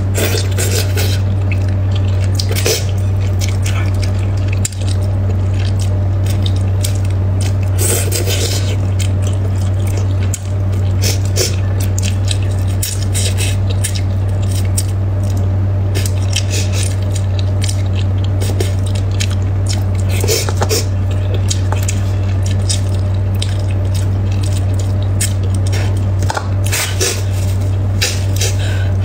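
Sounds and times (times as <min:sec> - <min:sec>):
steady low hum: 0:00.0 - 0:29.0
wet chewing and lip smacks: 0:00.3 - 0:28.6.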